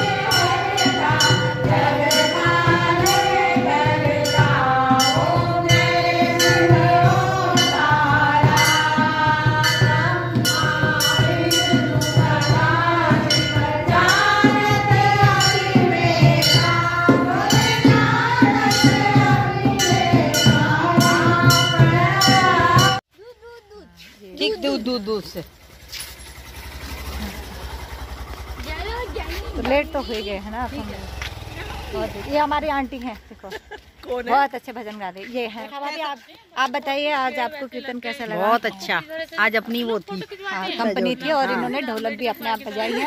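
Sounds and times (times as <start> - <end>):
group singing devotional song: 0.0 - 23.0
hand drum beat: 0.0 - 23.0.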